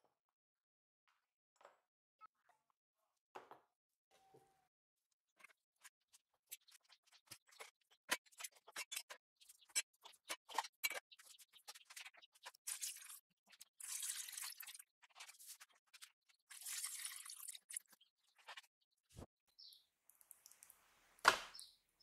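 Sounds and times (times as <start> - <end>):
liquid poured and foaming: 12.6 - 15.8, 16.4 - 18.0.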